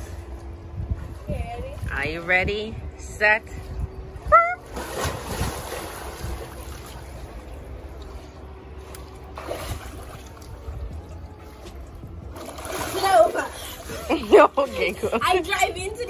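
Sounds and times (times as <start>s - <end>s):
wind on microphone: 0.0s - 6.9s, 9.4s - 14.3s
pool water splashing: 4.4s - 16.0s.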